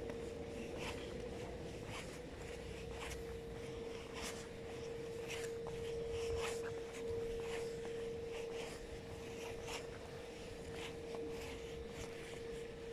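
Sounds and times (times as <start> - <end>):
footsteps on pavement: 0.0 - 12.9
steady hum: 0.0 - 12.9.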